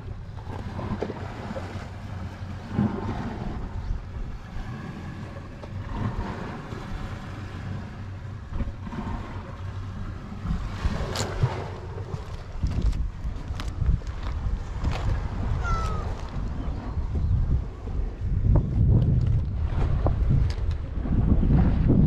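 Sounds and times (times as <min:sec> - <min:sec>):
wind rumbling on microphone: 0:00.0 - 0:22.0.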